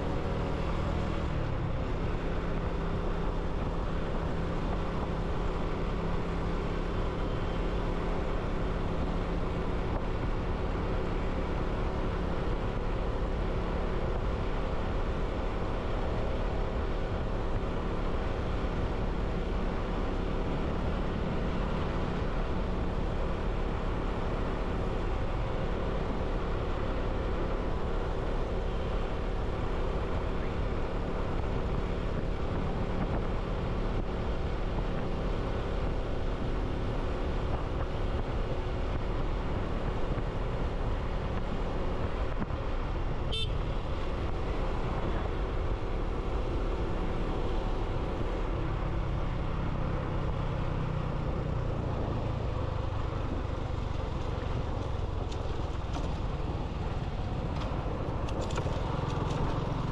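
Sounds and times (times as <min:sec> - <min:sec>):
road and wind noise: 0:00.0 - 0:59.9
motorcycle engine running: 0:52.7 - 0:59.9.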